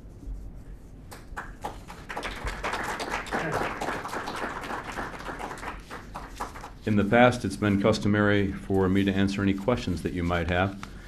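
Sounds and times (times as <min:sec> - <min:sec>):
audience applauding: 0:01.4 - 0:06.8.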